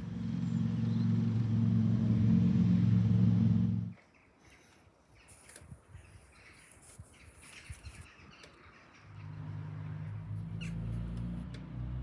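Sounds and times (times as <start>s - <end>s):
low engine rumble: 0.0s - 4.0s, 8.7s - 12.0s
birds chirping: 0.0s - 11.6s.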